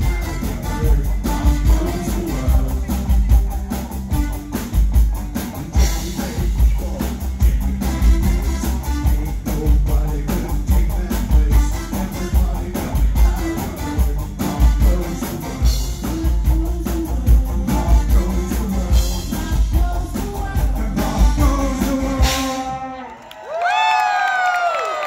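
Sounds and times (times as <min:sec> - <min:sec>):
live rock band: 0:00.0 - 0:23.2
crowd cheering and whooping: 0:22.5 - 0:25.0.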